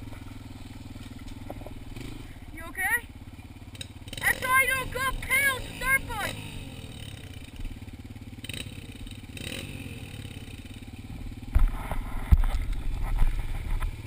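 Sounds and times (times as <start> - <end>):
dirt bike engine idling: 0.0 - 14.0
camera knocking and rumbling: 11.4 - 14.0.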